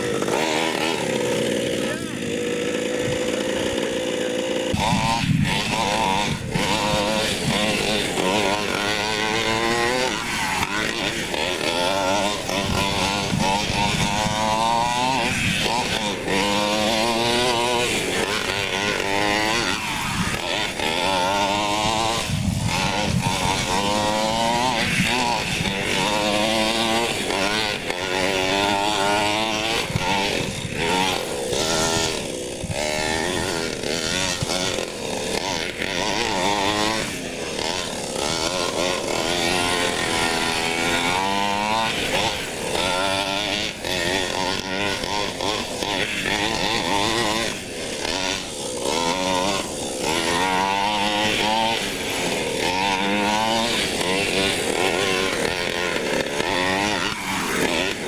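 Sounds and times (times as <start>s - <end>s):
small two-stroke engine revving: 0.0s - 58.0s.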